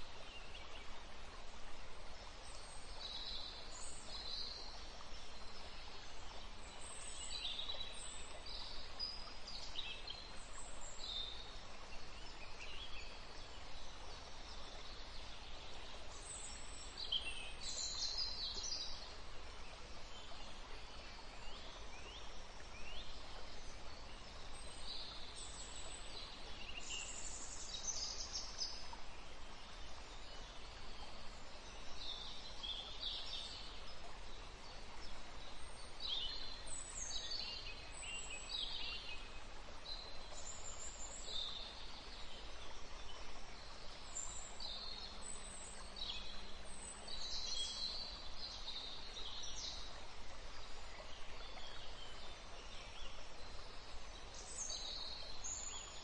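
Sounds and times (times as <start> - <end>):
faint steady hiss: 0.0 - 56.0.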